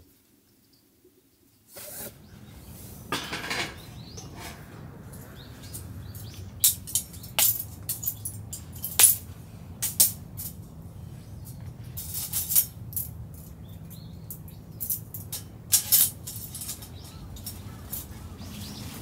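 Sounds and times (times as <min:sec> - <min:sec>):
metal clinks and rattles: 0:05.6 - 0:10.7, 0:11.4 - 0:18.2.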